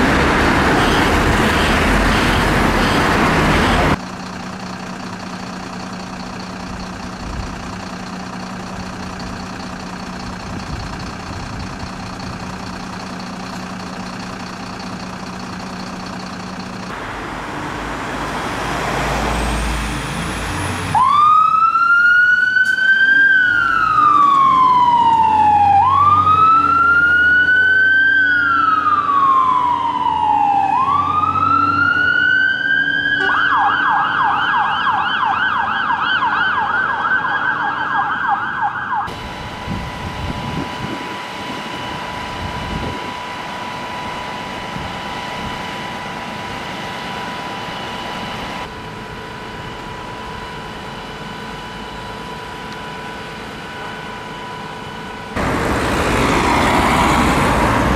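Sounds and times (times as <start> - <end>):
fire engine siren: 0.0 - 4.0, 4.9 - 57.9
steady vehicle hum: 0.0 - 57.9.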